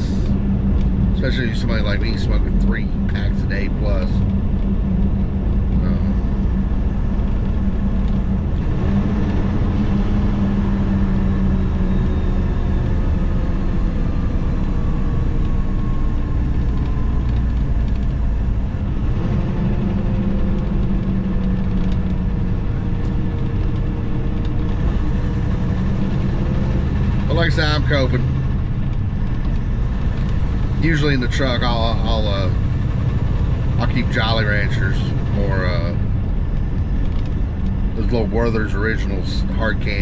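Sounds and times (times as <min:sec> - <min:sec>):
road noise: 0:00.0 - 0:40.0
truck diesel engine rumble: 0:00.0 - 0:40.0.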